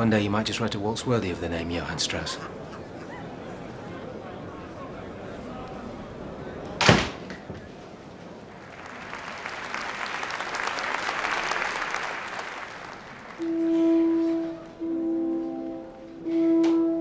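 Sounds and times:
audience applauding: 8.4 - 14.8
orchestral music with held notes: 13.4 - 17.0.

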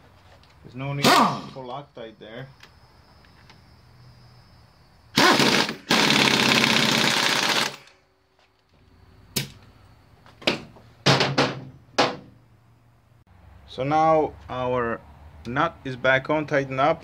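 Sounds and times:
pneumatic impact wrench rattling: 5.2 - 8.0.

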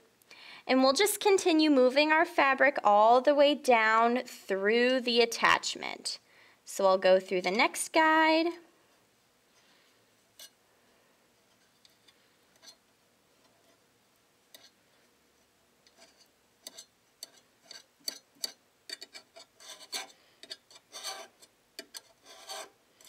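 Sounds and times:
metal tweezers clicking and scraping: 10.4 - 10.6, 11.5 - 12.8, 14.5 - 14.8, 15.8 - 22.7
fabric rubbing against metal: 22.2 - 22.8.

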